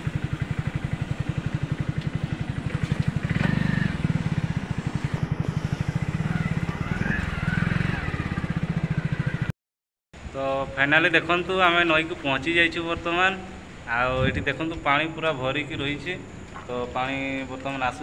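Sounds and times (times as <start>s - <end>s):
motorcycle engine running: 0.0s - 9.5s.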